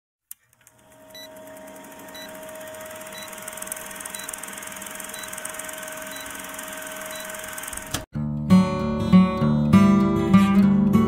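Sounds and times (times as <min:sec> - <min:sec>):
film projector whirr and clatter: 0:00.4 - 0:08.1.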